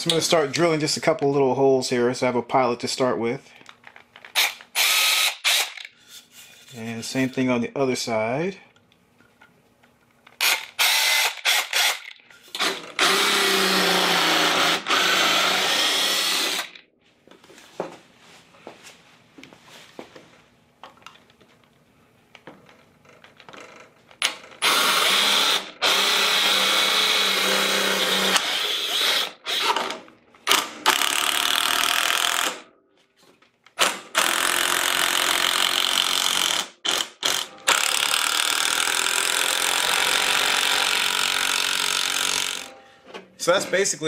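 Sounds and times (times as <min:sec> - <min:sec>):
cordless drill boring into wood: 0:04.4 - 0:05.9, 0:10.4 - 0:16.8, 0:24.6 - 0:29.9, 0:30.5 - 0:32.6, 0:33.8 - 0:42.7.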